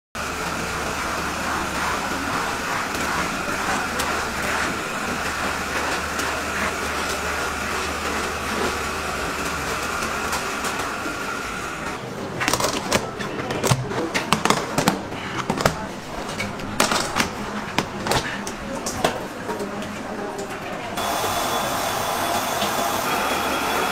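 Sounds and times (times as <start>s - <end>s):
mixing machine whine and hum: 0.2s - 12.4s, 20.8s - 23.9s.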